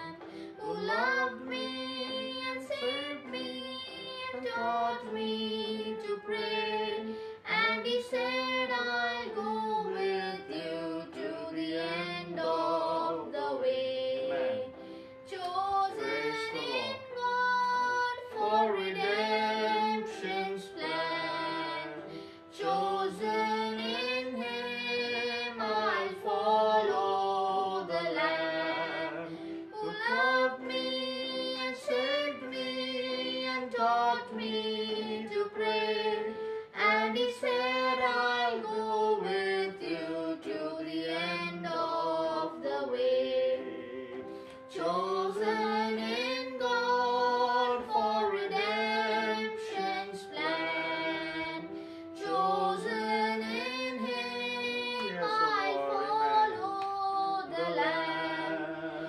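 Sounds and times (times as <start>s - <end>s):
boy singing a hymn: 0.0s - 59.0s.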